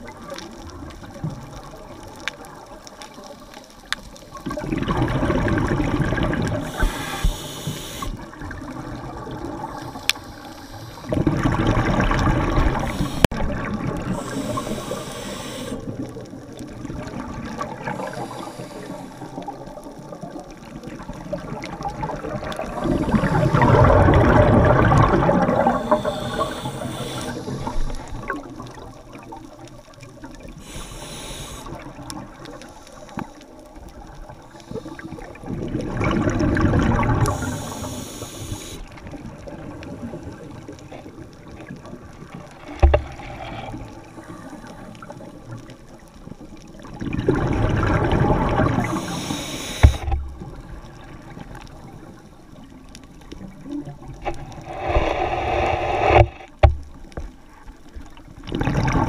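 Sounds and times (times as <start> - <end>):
exhaled bubbles underwater: 0.0 - 59.0
regulator inhalation hiss: 6.6 - 8.3, 9.8 - 11.1, 12.8 - 13.4, 14.0 - 15.9, 17.8 - 19.4, 25.6 - 28.2, 30.6 - 33.4, 34.5 - 35.3, 37.2 - 39.0, 48.8 - 50.2, 54.3 - 56.6.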